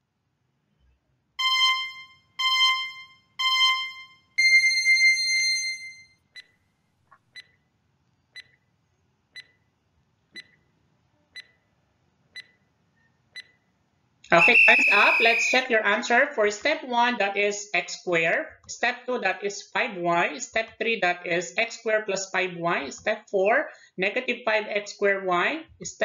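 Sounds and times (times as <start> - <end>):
timer ticking: 1.4 - 5.6, 10.4 - 10.6, 14.3 - 15.6
long high beep: 1.4 - 6.0, 14.3 - 15.6
short beeps: 14.3 - 15.6.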